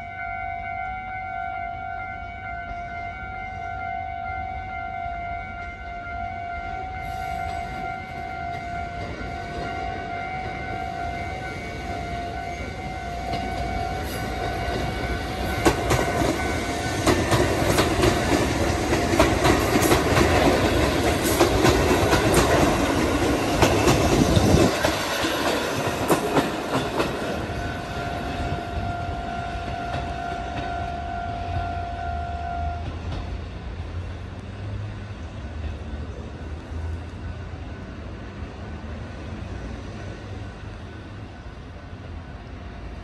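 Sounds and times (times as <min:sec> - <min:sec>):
train wheels clacking over rail joints: 0:11.8 - 0:28.6.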